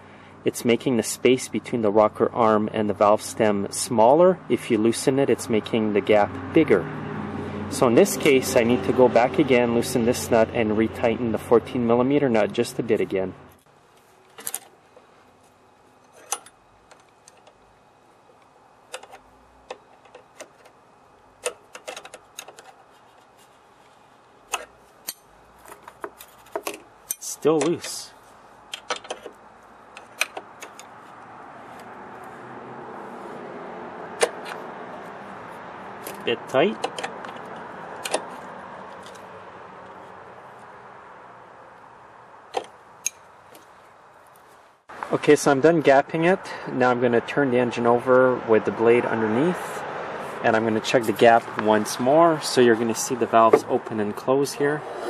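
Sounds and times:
wrench clicking on metal nuts: 26.6s - 28.0s.

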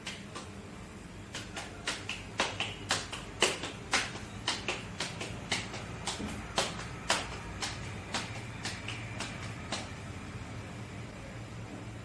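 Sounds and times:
hands slapping dough: 0.0s - 0.6s, 1.2s - 10.0s.

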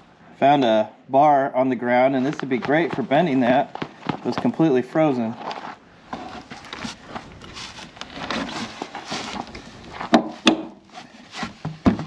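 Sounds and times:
log scraping against metal: 5.2s - 11.9s
sharp knocks: 10.1s - 10.8s.

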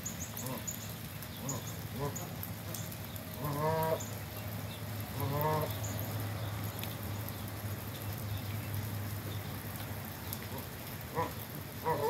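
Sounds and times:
waterfowl call: 3.4s - 4.1s, 5.1s - 5.7s, 10.5s - 12.0s.

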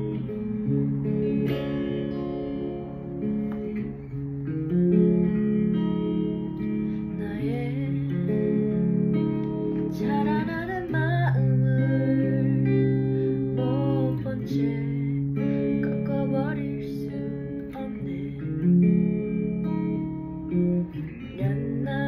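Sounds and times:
guitar chords: 0.0s - 22.0s
woman singing: 6.4s - 19.0s, 20.8s - 22.0s.

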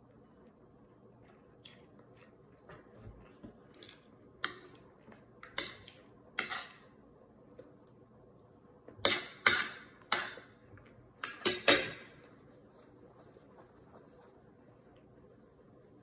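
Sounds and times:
soft chewing: 1.2s - 6.2s
cutlery scraping on plate: 6.4s - 6.8s.

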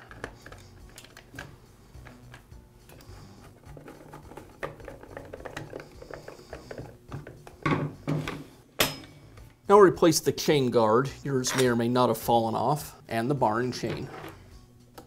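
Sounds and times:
plastic parts clicking and knocking: 0.0s - 2.5s, 3.7s - 8.3s.

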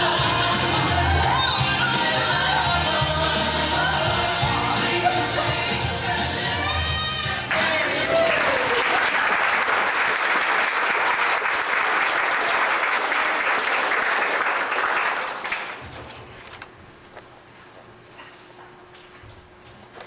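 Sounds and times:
audience applauding: 7.4s - 15.8s.

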